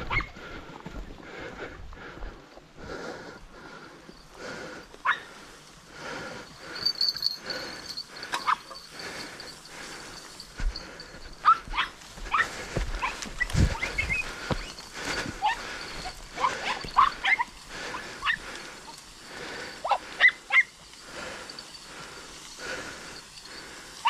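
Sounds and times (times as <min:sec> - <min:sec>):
dogs yelping and whining: 0:00.0 - 0:00.4, 0:08.3 - 0:09.0, 0:11.4 - 0:19.0, 0:19.8 - 0:20.8.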